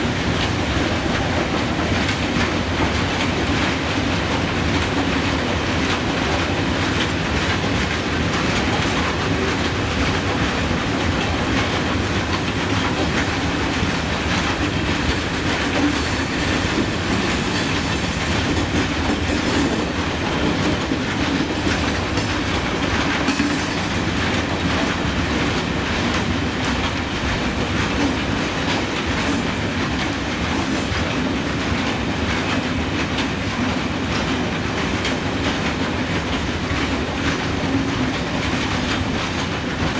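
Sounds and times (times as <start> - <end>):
train wheels clacking over rail joints: 0.0 - 39.9.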